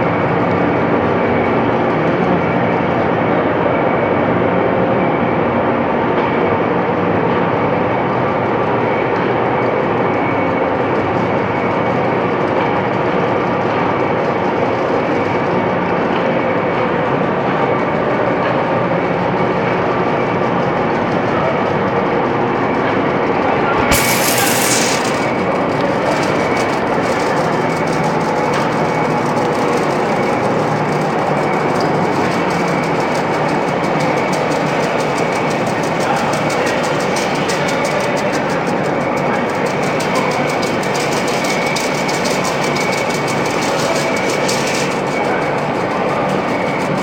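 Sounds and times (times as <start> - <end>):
faint high whine: 23.2 - 26.8
boring mill machining steel: 23.8 - 25.5.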